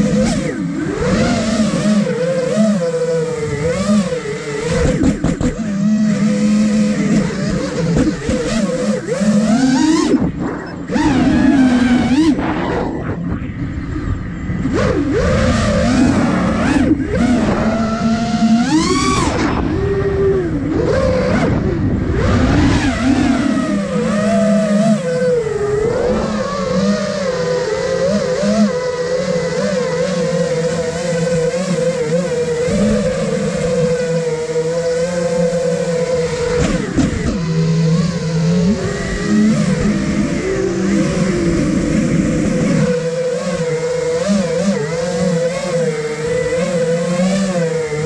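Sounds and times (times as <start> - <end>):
drone propellers whining: 0.0 - 48.0
wind rushing: 10.2 - 18.0.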